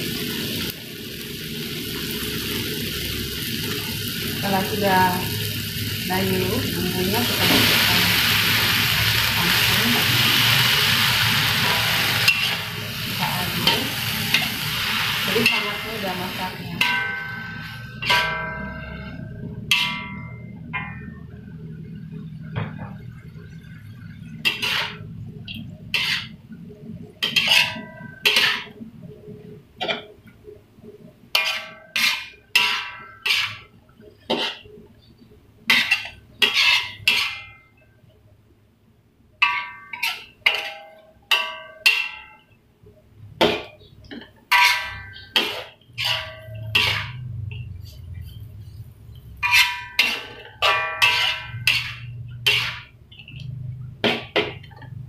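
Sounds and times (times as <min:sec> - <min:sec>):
metal spatula scraping a wok: 0:07.1 - 0:20.5, 0:23.9 - 0:25.1, 0:25.9 - 0:26.4, 0:27.2 - 0:28.8, 0:31.3 - 0:34.7, 0:35.7 - 0:37.6, 0:39.4 - 0:42.3, 0:44.5 - 0:54.6.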